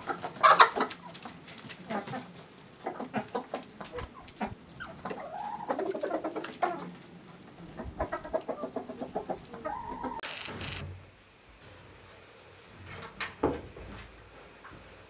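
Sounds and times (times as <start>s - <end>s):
chickens clucking: 0.0s - 10.3s.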